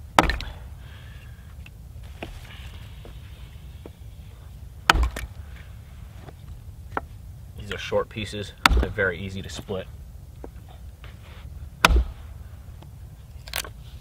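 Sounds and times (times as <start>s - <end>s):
axe splitting wood: 0.0s - 0.8s, 4.8s - 5.6s, 8.5s - 9.8s, 11.8s - 12.4s.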